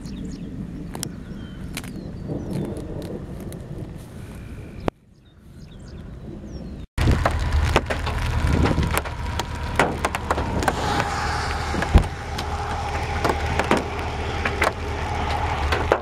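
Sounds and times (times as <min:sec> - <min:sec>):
wind rumbling on microphone: 0:00.0 - 0:16.0
sharp clicks and knocks: 0:07.0 - 0:10.8
faint steady hum: 0:07.0 - 0:16.0.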